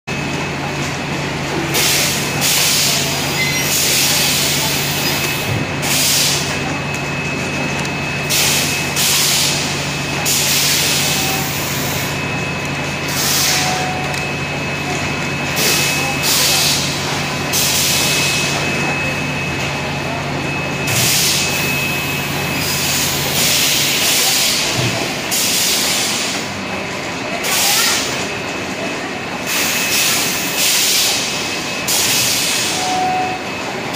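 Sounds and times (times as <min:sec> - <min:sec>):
filling machine humming: 0:00.1 - 0:33.9
pneumatic air hisses: 0:13.1 - 0:13.6, 0:20.9 - 0:21.5, 0:29.5 - 0:31.3.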